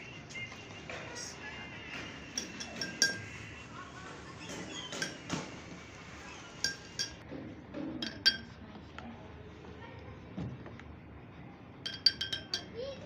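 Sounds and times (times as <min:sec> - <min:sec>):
metal spoon clinking on glass: 0:02.2 - 0:03.4, 0:04.9 - 0:05.4, 0:06.6 - 0:07.2, 0:08.0 - 0:08.5, 0:11.9 - 0:12.8.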